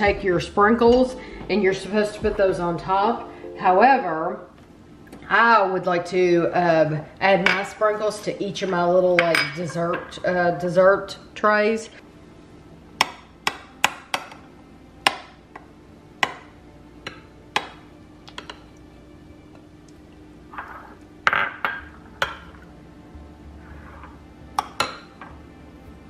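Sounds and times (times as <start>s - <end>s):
soft spoon scrape: 20.5s - 21.0s, 23.6s - 24.2s.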